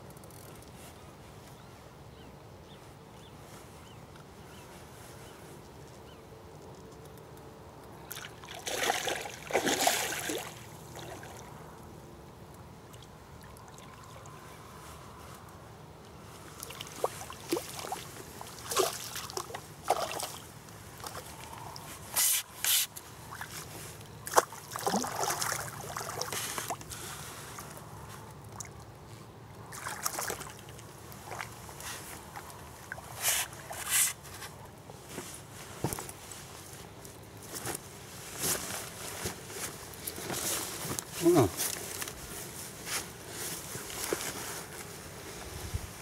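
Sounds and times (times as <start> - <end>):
water splashing and sloshing: 8.1 - 11.7, 12.8 - 14.4, 16.5 - 21.9, 23.2 - 27.8, 29.6 - 34.4.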